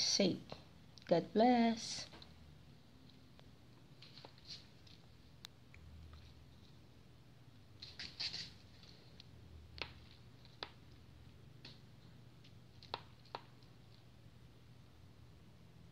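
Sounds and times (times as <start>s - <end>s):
low steady hum: 0.0s - 15.9s
faint small clicks and taps: 11.6s - 14.1s.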